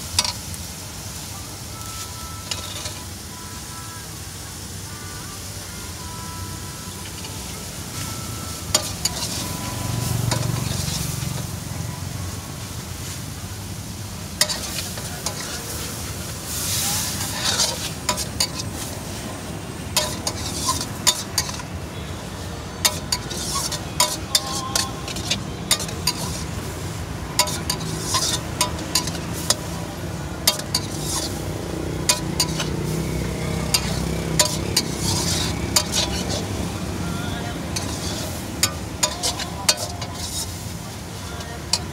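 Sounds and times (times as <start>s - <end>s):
noodles sizzling in wok: 0.0s - 41.9s
metal spatula scraping wok: 0.1s - 0.5s, 2.4s - 3.1s, 7.0s - 11.6s, 14.2s - 41.9s.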